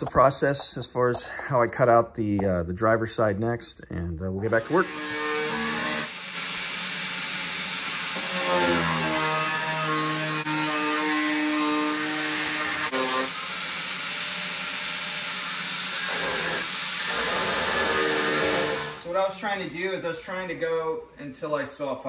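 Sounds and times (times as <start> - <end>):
power tool grinding: 4.5 - 19.1.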